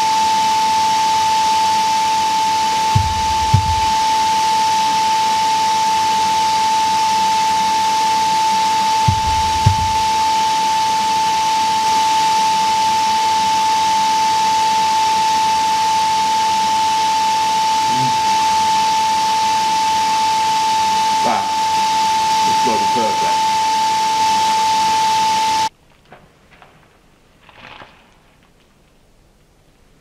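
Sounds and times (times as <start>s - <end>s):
air blower whining: 0.0s - 25.7s
dull low thumps: 3.0s - 4.0s, 9.1s - 10.2s.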